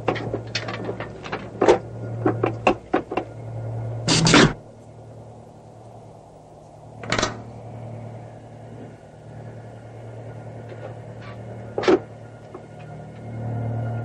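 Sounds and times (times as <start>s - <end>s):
steady low hum: 0.0s - 14.0s
electrical box clacking: 10.7s - 13.0s.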